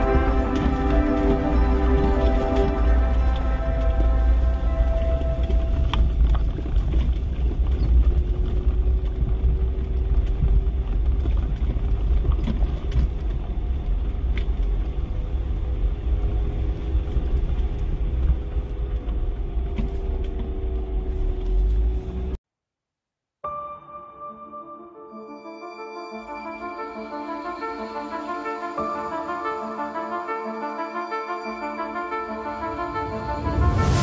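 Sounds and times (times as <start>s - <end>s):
vehicle rumbling on rocky track: 0.0s - 22.4s.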